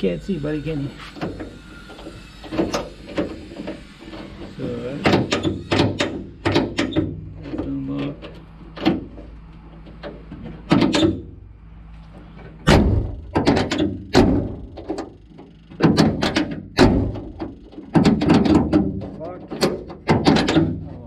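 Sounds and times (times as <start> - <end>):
door lock clicks and clunks: 5.0 - 7.6, 15.8 - 20.8.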